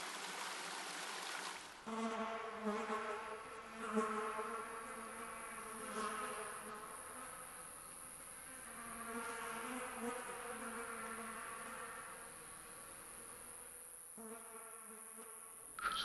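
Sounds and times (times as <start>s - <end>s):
insect buzzing: 1.8s - 16.0s.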